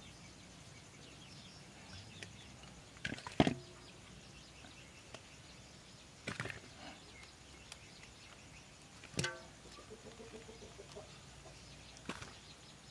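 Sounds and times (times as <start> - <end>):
faint bird chirps: 0.0 - 12.9
knocks on a metal bowl: 9.2 - 9.6.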